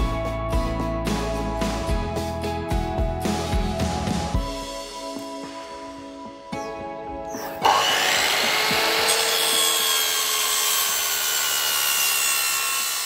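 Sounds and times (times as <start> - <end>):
mitre saw cutting wood: 7.3 - 13.0.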